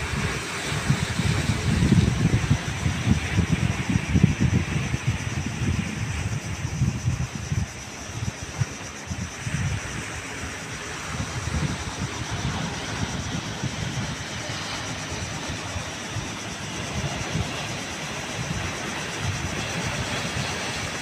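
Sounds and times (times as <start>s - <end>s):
wind buffeting microphone: 0.0s - 21.0s
waves breaking on rocks: 10.0s - 21.0s.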